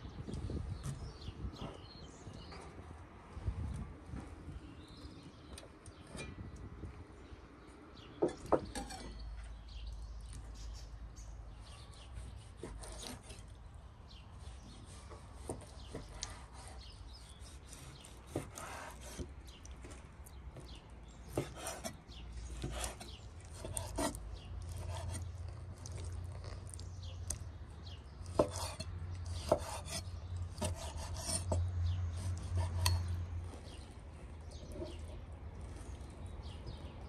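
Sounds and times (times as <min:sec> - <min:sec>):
scraping on wooden board: 0:14.4 - 0:20.0, 0:20.6 - 0:26.6, 0:28.2 - 0:33.9.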